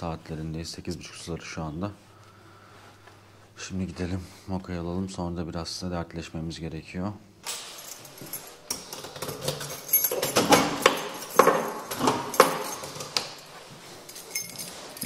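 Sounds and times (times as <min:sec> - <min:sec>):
keys jangling: 0:07.5 - 0:15.0.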